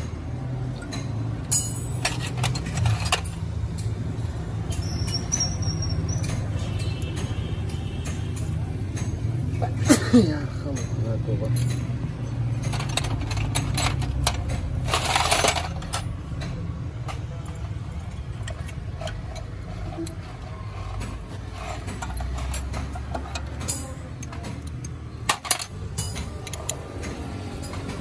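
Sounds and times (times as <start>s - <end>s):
metal clinks: 0.9s - 3.9s, 4.7s - 7.3s
metal scraping: 1.5s - 3.9s, 11.6s - 26.2s.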